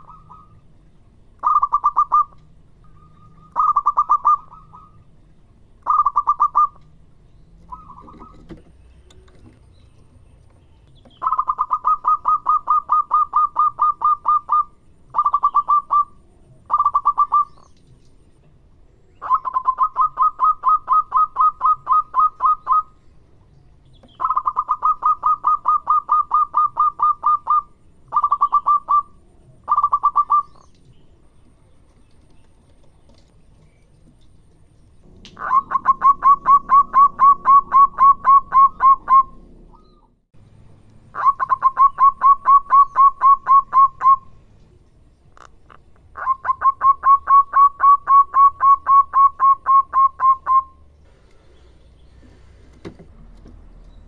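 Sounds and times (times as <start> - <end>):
dove calling staccato notes: 0.0 - 0.7, 1.4 - 5.2, 5.8 - 7.0, 7.6 - 9.6, 10.4 - 17.8, 19.1 - 23.0, 23.9 - 30.8, 35.1 - 40.1, 41.1 - 44.4, 45.3 - 50.8.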